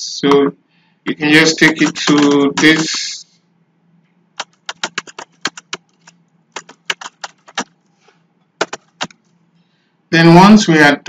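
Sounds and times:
computer keyboard typing: 1.4 - 3.2, 4.4 - 7.8, 8.6 - 9.2.

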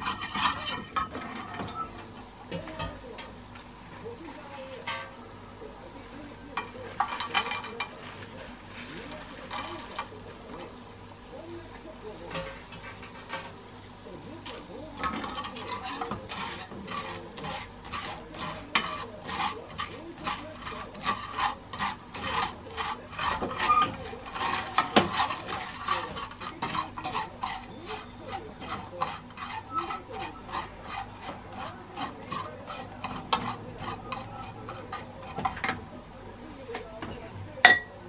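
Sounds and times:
dried fish scraped in a pan: 0.0 - 1.9, 6.1 - 13.5, 14.2 - 36.0
utensil knocking on pan: 15.0 - 35.9.

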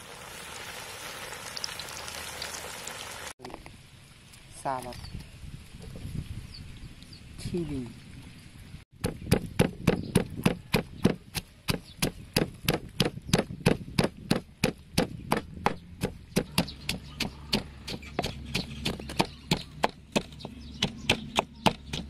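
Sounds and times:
wooden pestle pounding in mortar: 9.0 - 22.0.

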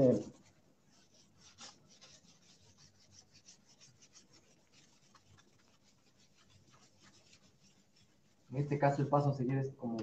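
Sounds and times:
cloth rubbing on waxed panel: 0.0 - 9.4.

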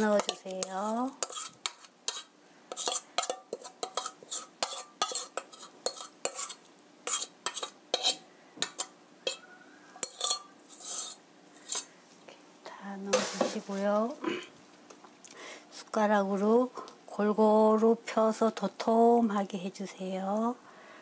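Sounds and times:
metal spoon scraping bowl: 0.0 - 11.9
spoon tapping metal bowl: 0.1 - 0.7.

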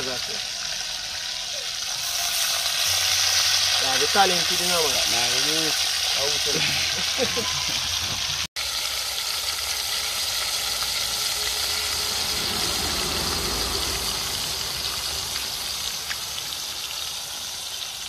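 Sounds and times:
fish frying in hot oil: 0.0 - 18.0
low rumble: 10.8 - 16.8.

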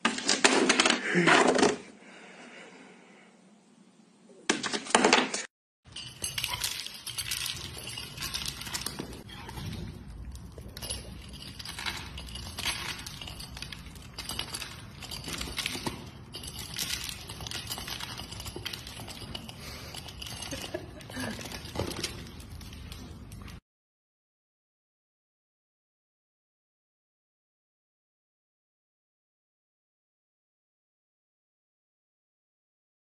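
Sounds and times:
pellets clicking and rattling: 5.9 - 23.3.

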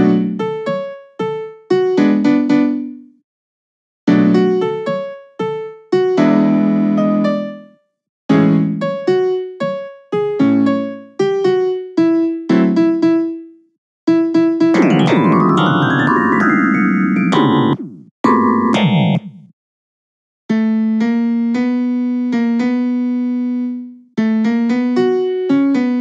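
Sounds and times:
midi piano notes and chords: 0.0 - 3.2, 4.1 - 19.4, 20.8 - 26.0
dense cluster of piano notes: 14.7 - 18.1.

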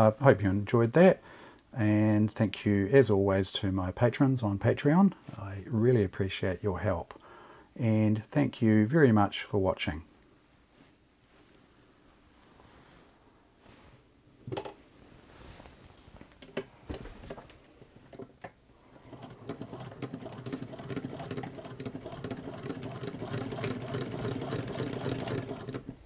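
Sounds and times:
sewing machine clattering: 19.0 - 26.0.

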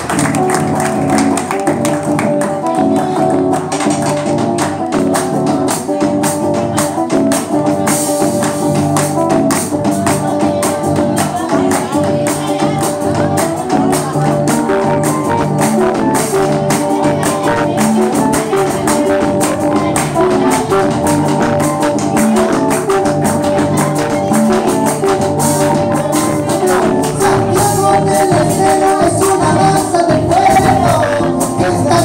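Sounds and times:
band playing guitars: 0.0 - 32.0
congas rhythm: 0.0 - 32.0.

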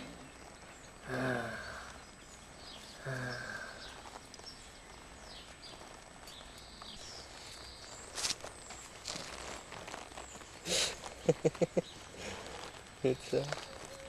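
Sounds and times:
faint high chirps: 0.0 - 14.0
short low vocal sounds: 1.0 - 2.1, 2.9 - 4.1.

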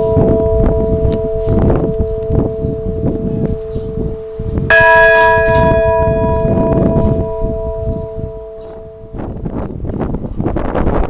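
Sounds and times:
church bell ringing: 0.0 - 10.2
wind rumbling on microphone: 0.0 - 11.0.

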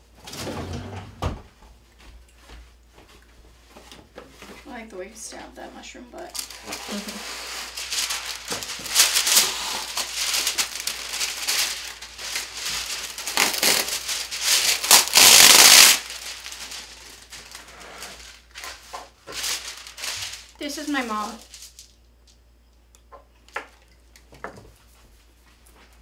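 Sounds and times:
wax paper crinkling: 6.3 - 22.0
paper ripping: 6.4 - 21.8.

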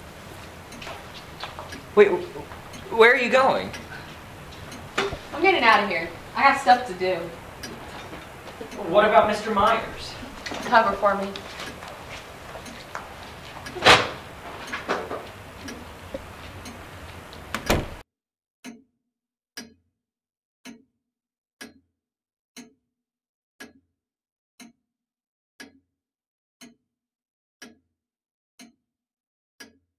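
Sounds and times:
clock ticking: 0.0 - 18.0.

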